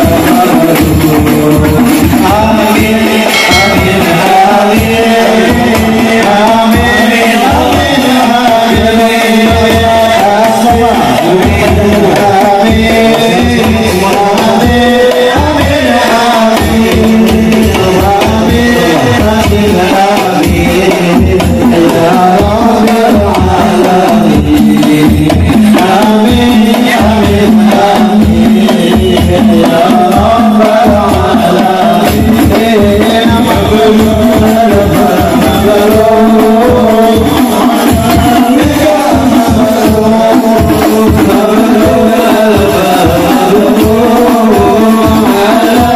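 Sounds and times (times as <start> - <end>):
frame drums beating: 0.0 - 45.9
men singing together: 0.0 - 45.9.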